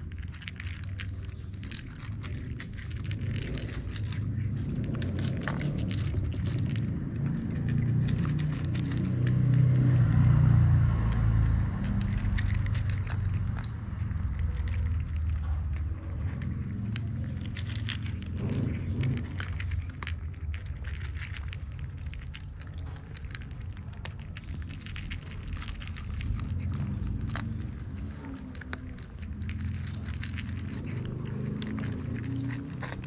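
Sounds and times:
cats crunching dry kibble: 0.0 - 33.0
low rumble: 0.0 - 33.0.

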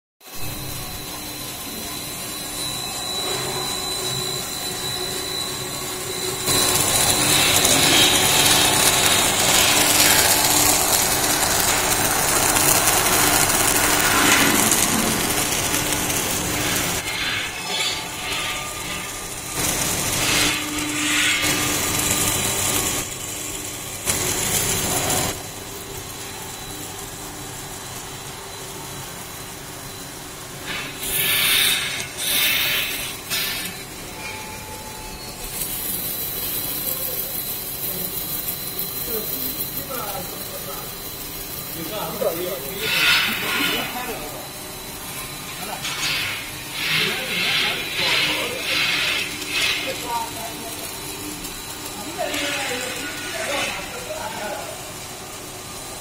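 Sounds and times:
machinery humming and whining: 0.2 - 56.0
noisy surges: 0.3 - 25.6
loud hiss: 30.7 - 33.7.

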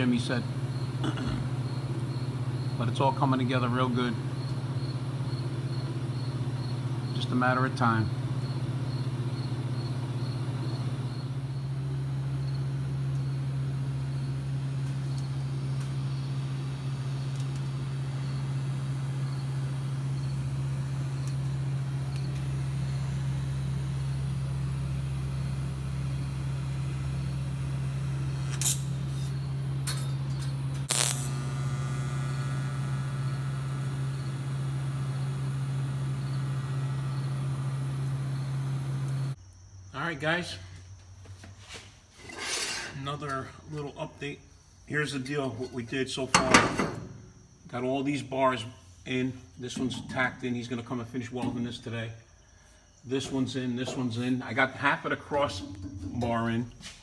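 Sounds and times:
arc welder buzzing: 0.0 - 39.4, 53.1 - 56.9.

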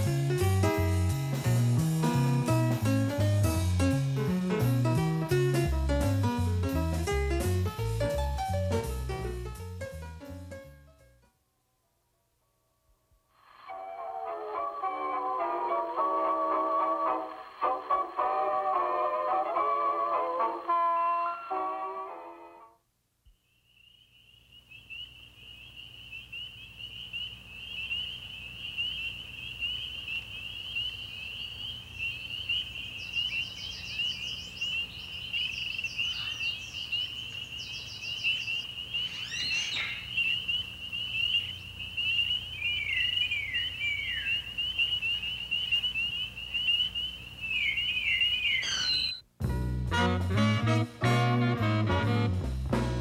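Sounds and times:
bird chirps: 23.3 - 49.3
high-pitched trilling chorus: 23.6 - 49.2.

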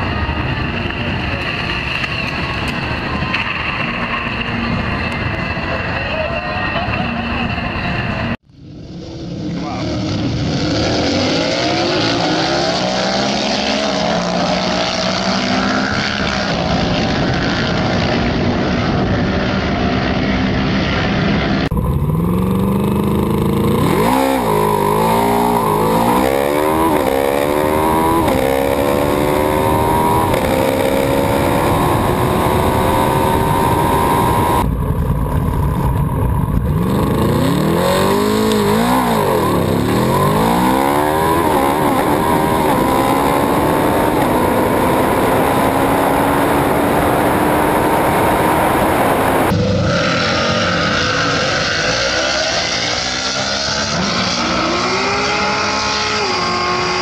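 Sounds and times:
crowd noise: 0.0 - 8.4
motorcycle engine revving: 0.0 - 57.0
wind noise: 15.6 - 50.0.

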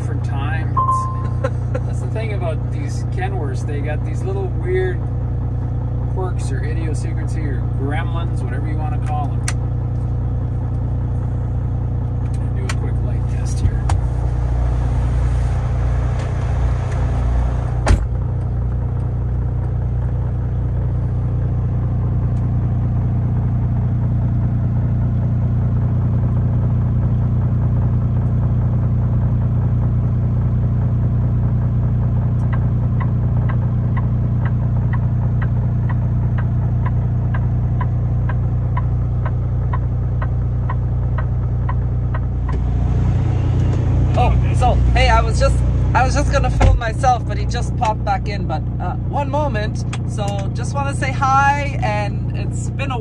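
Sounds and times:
diesel truck engine idling: 0.0 - 53.0
turn signal flasher ticking: 32.1 - 48.1.

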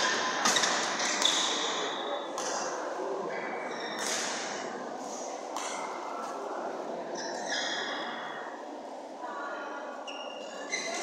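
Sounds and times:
shoes squeaking on floor: 0.4 - 1.9, 10.0 - 11.0.

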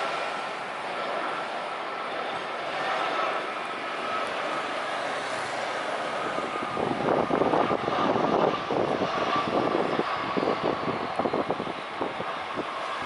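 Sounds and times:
jet engines whining on landing: 0.0 - 13.0.

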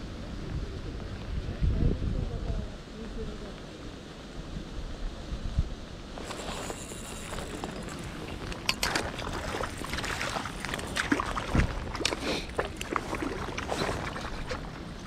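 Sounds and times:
water splashing and sloshing: 6.2 - 15.0.

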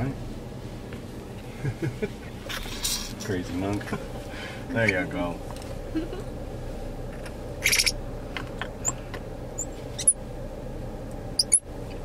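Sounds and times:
idling car hum: 0.0 - 12.0
monkey chirping: 7.6 - 8.0, 9.6 - 10.2, 11.4 - 11.6.

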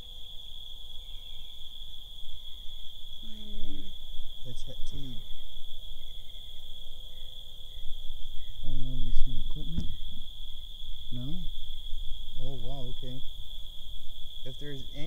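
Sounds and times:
crickets chirping: 0.0 - 15.0
low voices: 8.3 - 10.0, 11.1 - 11.5.

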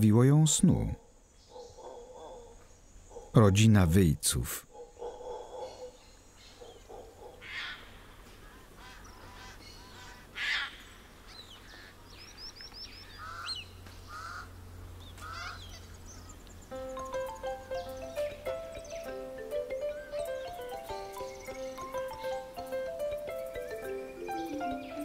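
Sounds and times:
harsh bird squawks: 7.4 - 10.8, 13.1 - 14.5, 15.2 - 15.9
bird chirps and trills: 8.5 - 25.0.

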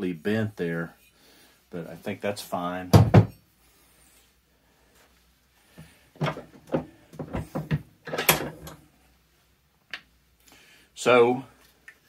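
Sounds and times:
metal clunks and scrapes: 6.2 - 8.8.

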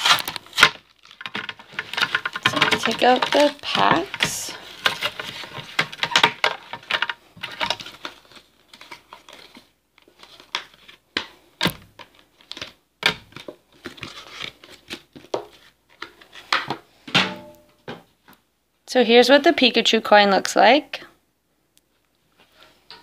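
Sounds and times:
plastic packaging crinkling: 0.0 - 16.6.

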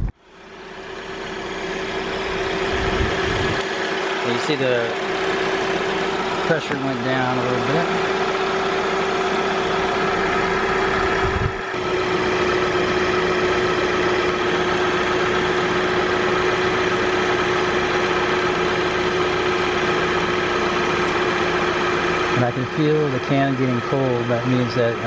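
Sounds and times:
air-conditioning compressor whine: 0.0 - 25.0
car engine idling: 0.0 - 25.0.

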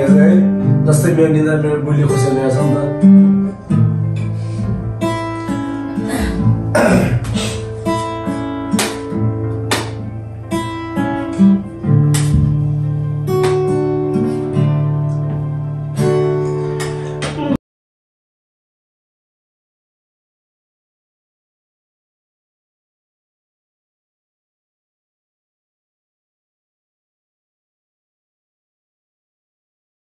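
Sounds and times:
acoustic guitar strumming chords: 0.0 - 17.6.

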